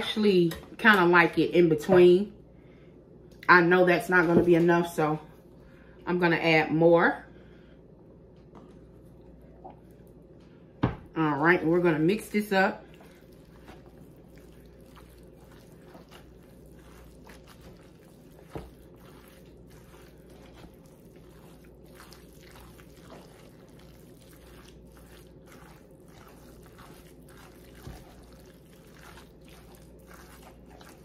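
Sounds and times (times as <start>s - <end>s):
spoon squishing and scraping: 12.9s - 31.0s.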